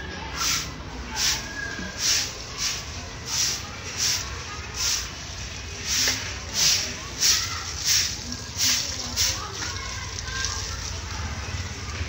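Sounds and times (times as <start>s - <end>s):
broom sweeping concrete floor: 0.3s - 9.8s.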